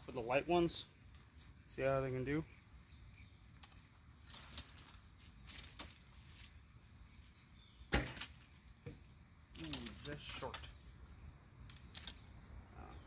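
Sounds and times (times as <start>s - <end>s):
faint bird chirps: 2.4s - 3.8s, 7.0s - 9.0s, 11.8s - 13.0s.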